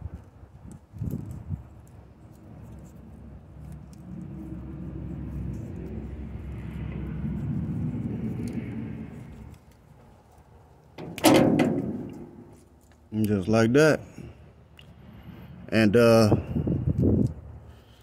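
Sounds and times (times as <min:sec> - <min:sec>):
vehicle passing rumble: 0:02.0 - 0:13.2.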